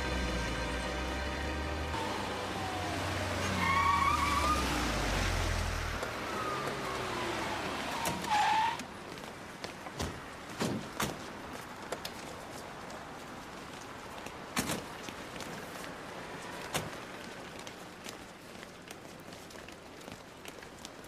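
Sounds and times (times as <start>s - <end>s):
car braking to a stop: 1.9s - 8.8s
tyres squealing: 2.5s - 5.0s, 6.0s - 8.9s.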